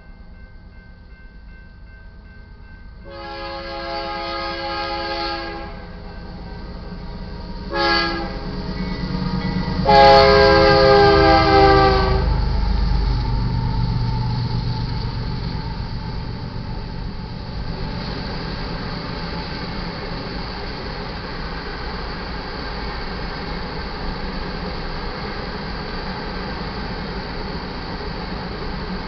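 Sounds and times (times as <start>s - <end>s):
diesel locomotives rumbling past: 0.0s - 29.0s
locomotive air horn blasts: 3.1s - 6.1s, 7.7s - 8.5s, 9.8s - 12.4s.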